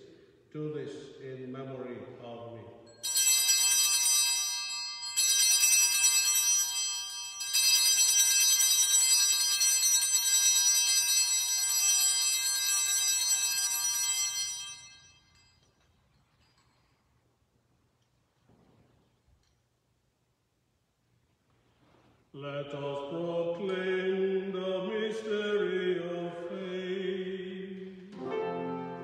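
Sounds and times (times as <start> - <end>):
altar bells ringing: 2.8 - 17.2.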